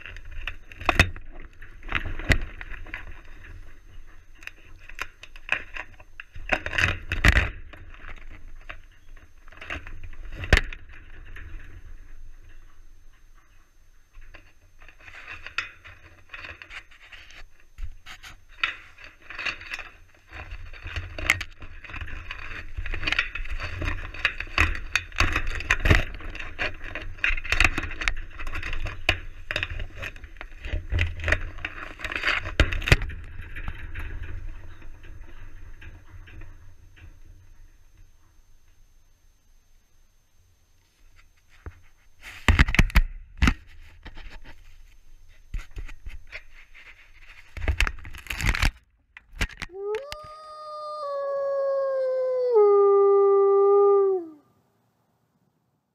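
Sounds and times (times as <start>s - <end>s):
scraping and clicking on camera: 14.2s - 34.8s, 40.8s - 54.0s.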